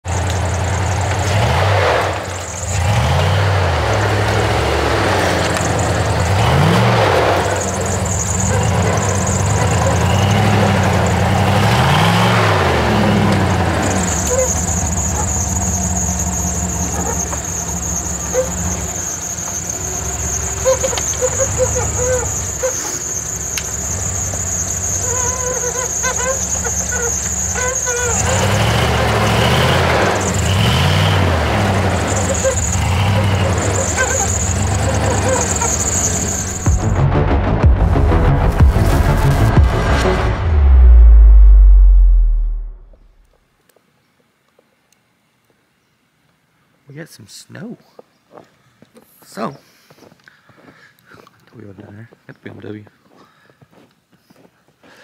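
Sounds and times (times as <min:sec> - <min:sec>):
engine revving: 0:00.0 - 0:43.3
high-pitched whine: 0:02.0 - 0:43.4.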